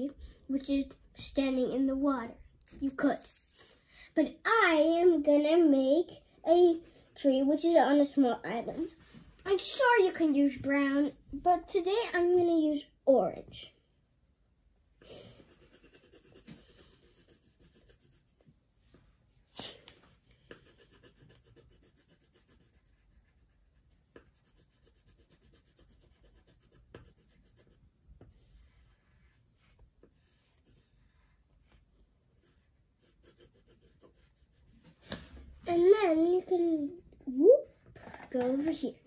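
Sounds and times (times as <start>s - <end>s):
pencil scratching on paper: 6.5s - 7.8s, 15.2s - 18.6s, 20.4s - 35.3s.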